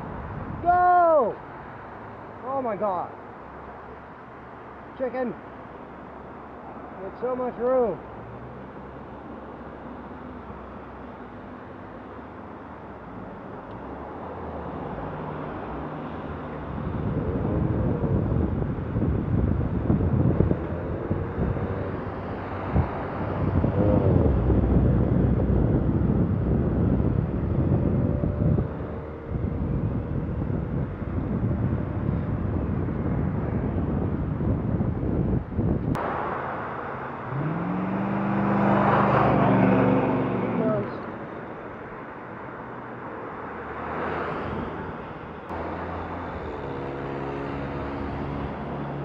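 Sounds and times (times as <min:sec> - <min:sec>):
wind buffeting microphone: 0:00.0 - 0:01.4, 0:15.6 - 0:42.4.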